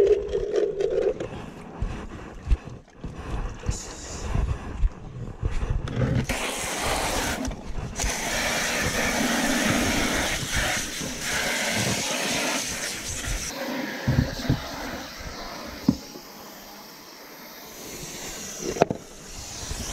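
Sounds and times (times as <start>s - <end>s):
water running from garden hose: 6.3s - 13.5s.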